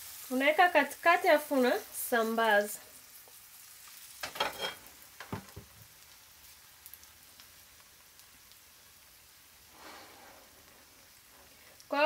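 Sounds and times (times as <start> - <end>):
batter sizzling in a pan: 0.0 - 12.0
pan knocking and scraping on stovetop: 4.2 - 5.8.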